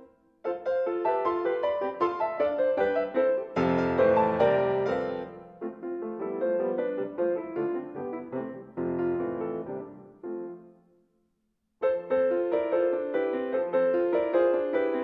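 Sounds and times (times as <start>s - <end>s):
grand piano notes: 0.0s - 10.8s.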